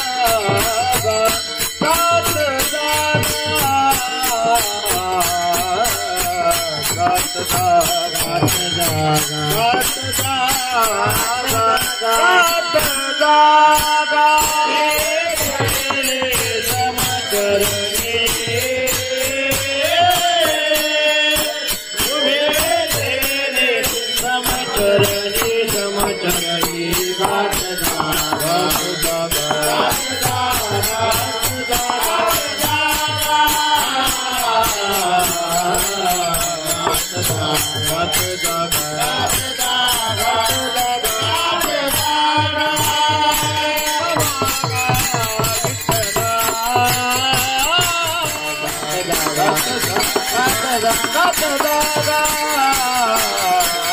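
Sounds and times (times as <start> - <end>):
group call-and-response singing: 0.0 - 53.9
hand cymbals clashing: 0.0 - 53.9
hand drum: 44.2 - 52.5.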